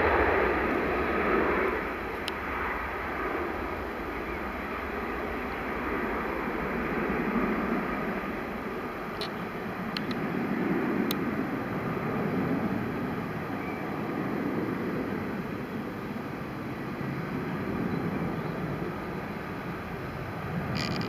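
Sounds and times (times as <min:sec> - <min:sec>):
distant jet engines rumbling: 0:00.0 - 0:21.0
faint clicks: 0:09.2 - 0:10.2.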